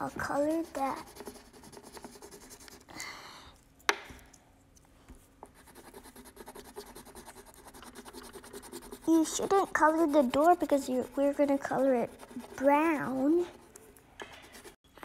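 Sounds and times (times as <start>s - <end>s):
pencil scribbling on paper: 0.0s - 2.9s, 5.4s - 13.8s, 14.4s - 14.8s.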